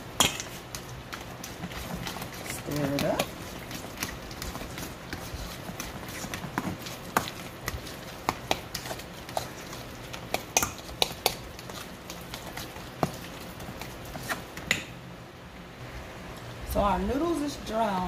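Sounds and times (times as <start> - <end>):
utensil scraping metal bowl: 0.2 - 14.5.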